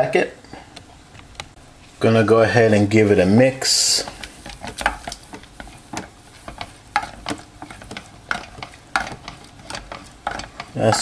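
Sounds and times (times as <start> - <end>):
spoon scraping metal pot: 3.9 - 11.0.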